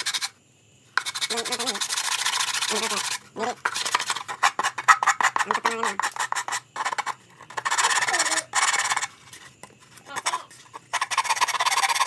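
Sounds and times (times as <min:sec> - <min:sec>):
hands scraping wooden toy: 0:00.0 - 0:00.3, 0:01.0 - 0:12.0.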